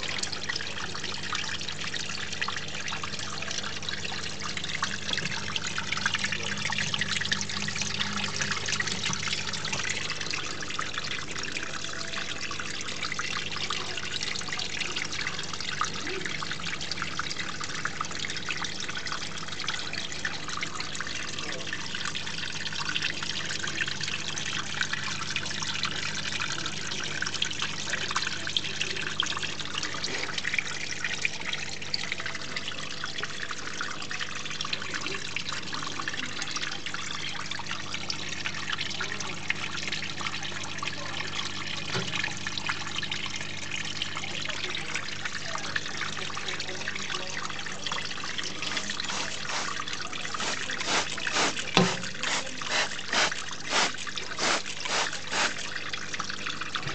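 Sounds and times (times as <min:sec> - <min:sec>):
water trickling over rocks: 0:00.0 - 0:56.9.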